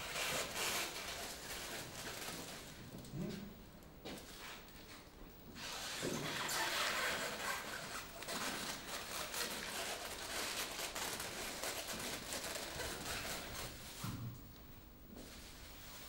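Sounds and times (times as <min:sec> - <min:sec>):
rustling and scraping: 0:04.1 - 0:14.4.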